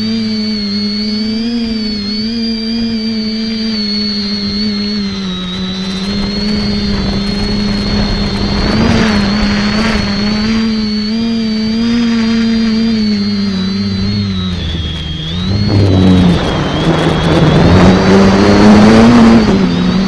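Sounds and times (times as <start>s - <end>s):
drone propellers buzzing: 0.0s - 20.0s
wind noise rush: 5.0s - 11.1s, 13.2s - 20.0s.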